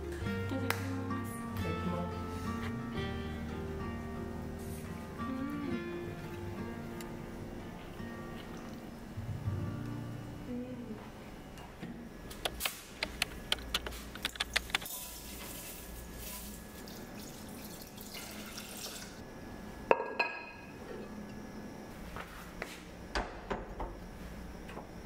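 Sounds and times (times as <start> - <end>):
water running from tap: 16.7 - 19.2.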